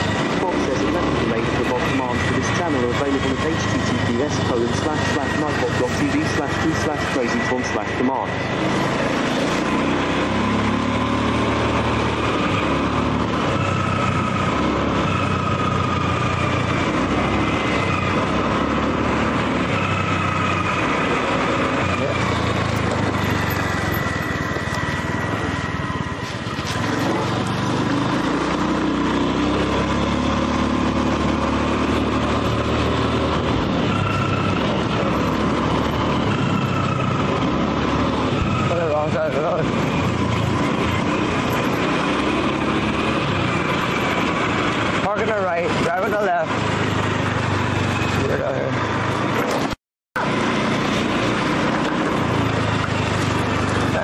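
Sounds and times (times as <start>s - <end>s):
road noise: 0.0s - 54.0s
vehicle engine running: 0.0s - 54.0s.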